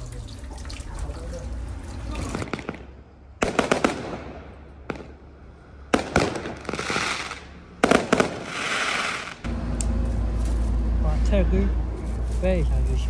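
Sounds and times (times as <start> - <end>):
fireworks bangs: 2.2 - 9.5
fireworks crackling hiss: 6.4 - 9.5.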